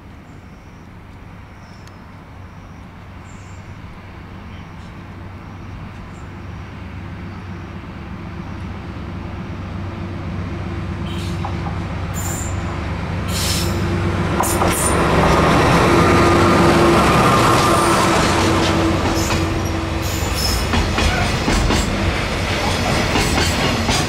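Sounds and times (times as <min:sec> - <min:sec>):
rumble of wheels on rails: 0:00.0 - 0:24.0.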